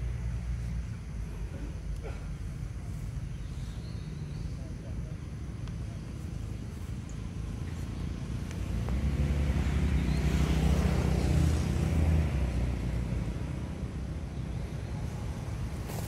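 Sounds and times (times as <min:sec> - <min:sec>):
vehicle engine passing by: 0:06.6 - 0:16.0.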